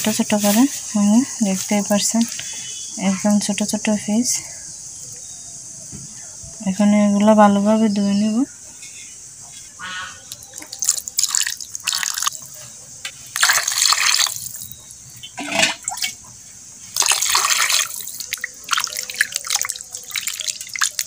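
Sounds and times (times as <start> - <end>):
water splashing in a glass bowl: 10.3 - 12.5, 13.3 - 14.8, 17.0 - 21.0.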